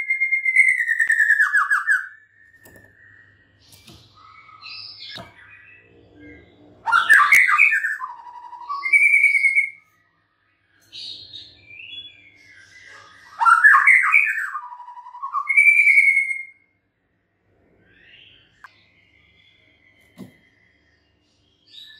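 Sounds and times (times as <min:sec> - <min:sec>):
bird singing: 0:00.0 - 0:16.8, 0:17.8 - 0:21.9.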